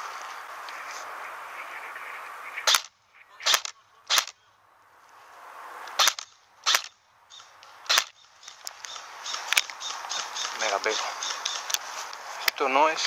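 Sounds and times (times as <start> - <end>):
rustling hiss: 0.0 - 2.8, 7.4 - 13.0
airsoft gun shots snapping: 2.6 - 4.4, 5.9 - 7.0, 7.9 - 10.5.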